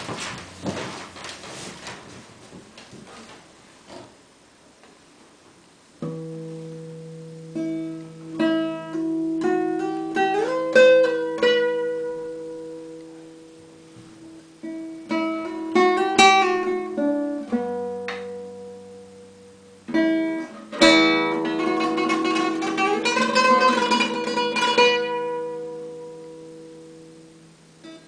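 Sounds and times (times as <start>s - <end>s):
classical guitar playing: 6.0s - 28.0s.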